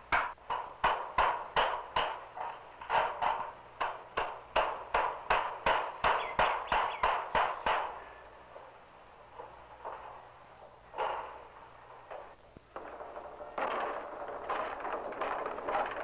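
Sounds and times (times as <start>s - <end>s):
hammer striking nails into wood: 0.1s - 8.0s.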